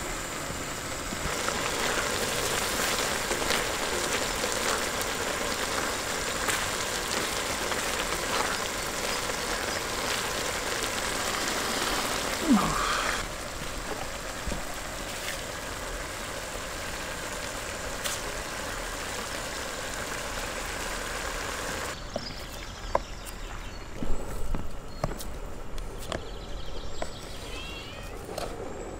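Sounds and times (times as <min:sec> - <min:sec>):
tomatoes sizzling in a wok: 0:00.0 - 0:22.0.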